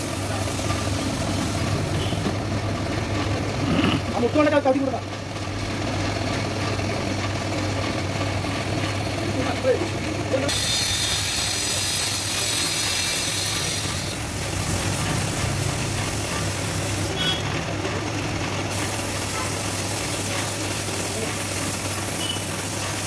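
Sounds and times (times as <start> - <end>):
paint spray gun hissing: 0.0 - 2.3, 10.5 - 17.4, 18.7 - 23.0
air compressor hum: 0.0 - 23.0.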